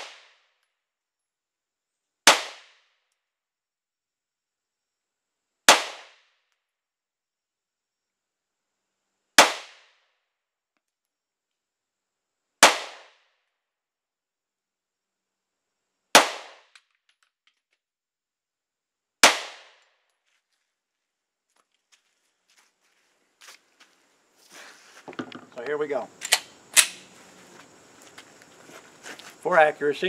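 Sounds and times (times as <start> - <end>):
pistol shots: 2.3 - 2.8, 5.7 - 6.2, 9.4 - 9.9, 12.6 - 13.2, 16.2 - 16.8, 19.2 - 19.8, 26.2 - 27.1.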